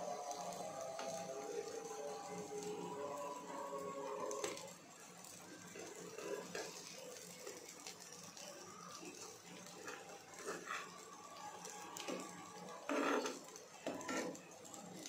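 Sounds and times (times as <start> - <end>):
faint frying: 0.0 - 15.0
metal spatula scraping frying pan: 12.9 - 14.4.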